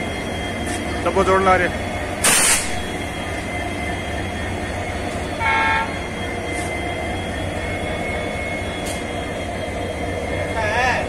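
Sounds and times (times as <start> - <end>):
diesel locomotive idling: 0.0 - 11.0
locomotive horn toot: 5.4 - 6.1.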